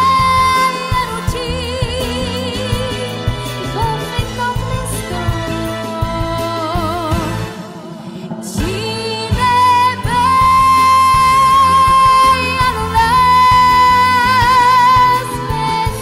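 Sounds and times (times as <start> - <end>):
girl singing into a microphone: 0.0 - 3.1, 8.5 - 16.0
instrumental accompaniment: 0.0 - 16.0.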